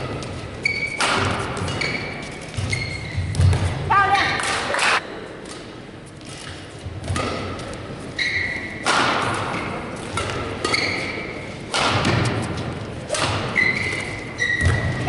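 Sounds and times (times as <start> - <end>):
shoes squeaking on court: 0.0 - 3.8, 6.1 - 8.8, 9.6 - 15.0
racket hitting shuttlecock: 0.0 - 5.7, 7.0 - 7.8, 8.7 - 15.0.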